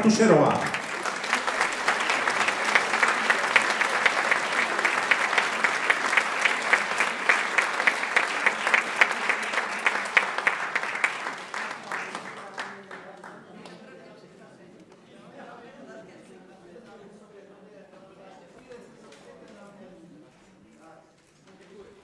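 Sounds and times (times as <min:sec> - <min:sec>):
audience applauding: 0:00.0 - 0:13.8
nearby hands clapping evenly: 0:00.6 - 0:12.8.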